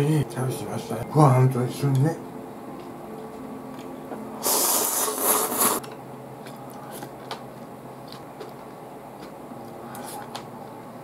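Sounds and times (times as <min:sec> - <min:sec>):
man slurping noodles: 0:04.4 - 0:05.8.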